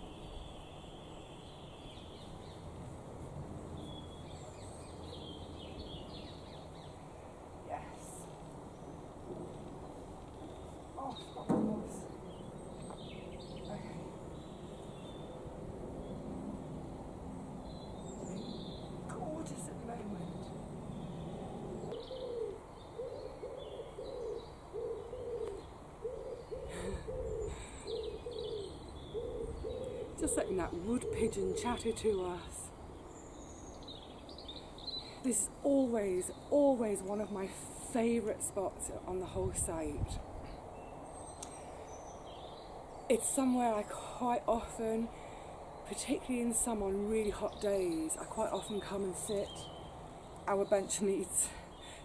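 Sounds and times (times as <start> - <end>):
small birds singing: 0.0 - 52.0
pigeon cooing: 21.9 - 31.6.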